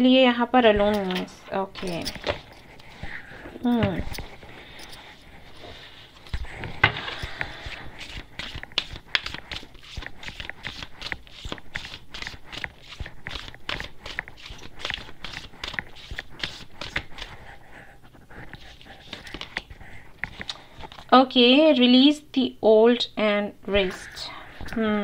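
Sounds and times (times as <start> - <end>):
cards being shuffled: 0.7 - 17.4, 18.4 - 21.1.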